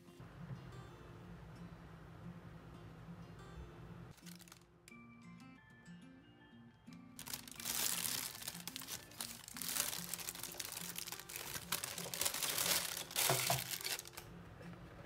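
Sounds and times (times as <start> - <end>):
soft background music: 0.0 - 15.0
plastic bag crinkling: 4.1 - 4.7, 7.2 - 14.3.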